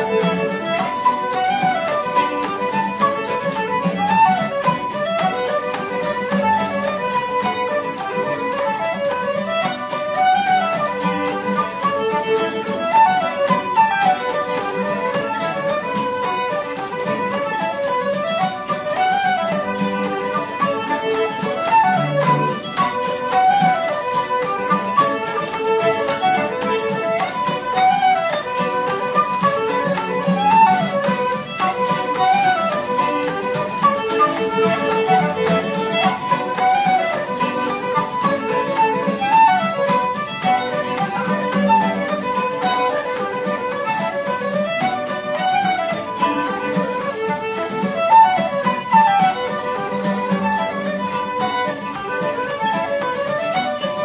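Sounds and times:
fiddles playing fast dance tune: 0:00.0 - 0:54.0.

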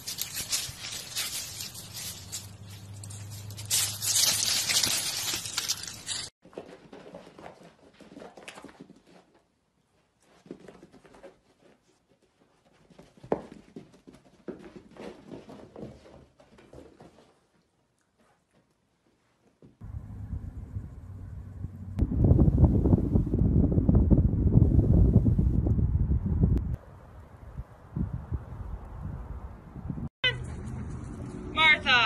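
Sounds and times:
loud hissy rustling: 0:00.0 - 0:06.3.

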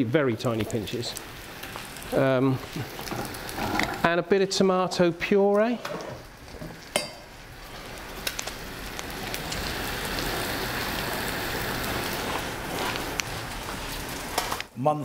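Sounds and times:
food sizzling in pans: 0:00.0 - 0:14.8.

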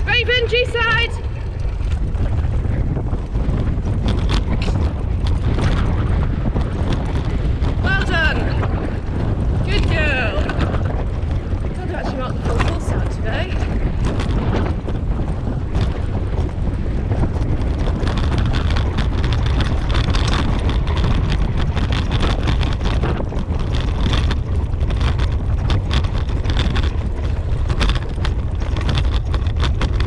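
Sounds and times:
rig rattling and knocking: 0:00.0 - 0:30.0
wind buffeting microphone: 0:00.0 - 0:30.0.

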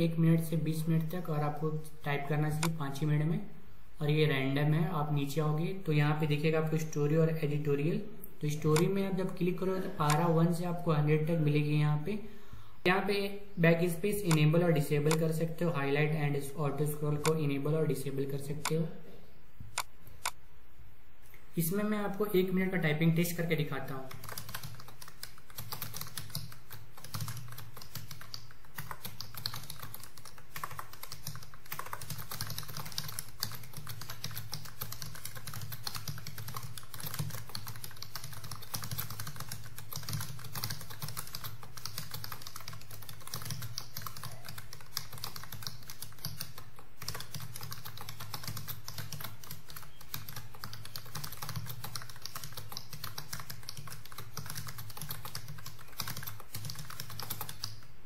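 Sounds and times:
fast keyboard typing: 0:00.0 - 0:03.2, 0:08.5 - 0:11.7, 0:13.7 - 0:18.8, 0:23.2 - 0:57.9.

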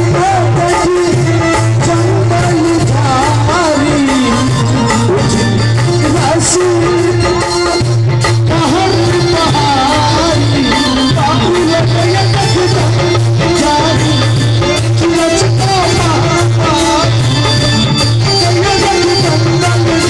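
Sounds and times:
held accompaniment tones: 0:00.0 - 0:20.0
light percussion: 0:00.0 - 0:20.0
man singing into a microphone: 0:00.0 - 0:20.0.

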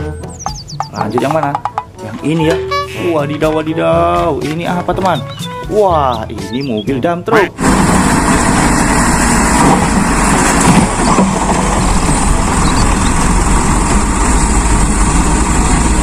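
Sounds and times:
truck engine running: 0:00.0 - 0:16.0
sand rushing out: 0:07.6 - 0:16.0.

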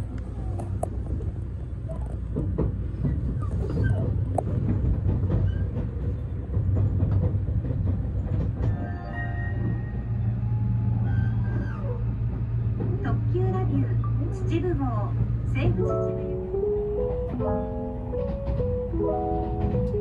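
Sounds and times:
train cabin rumble: 0:00.0 - 0:20.0
background music: 0:15.8 - 0:20.0.

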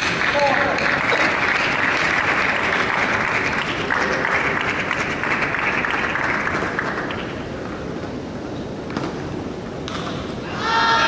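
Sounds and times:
spectators applauding: 0:00.0 - 0:07.4.

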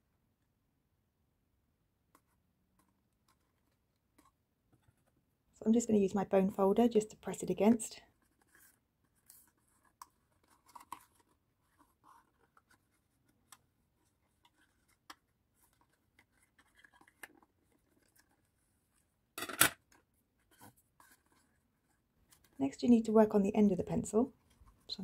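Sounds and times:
card box rustles and clicks: 0:08.3 - 0:18.6.

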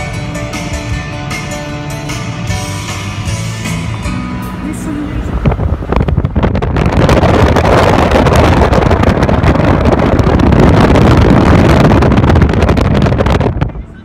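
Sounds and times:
car road noise: 0:00.0 - 0:14.0
wind buffeting microphone: 0:05.1 - 0:14.0.

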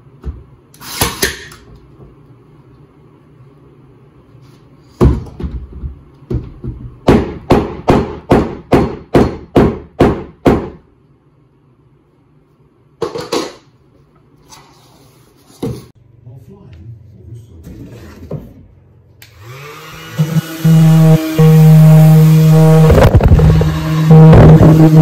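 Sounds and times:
hammer blows on wood: 0:20.2 - 0:25.0.

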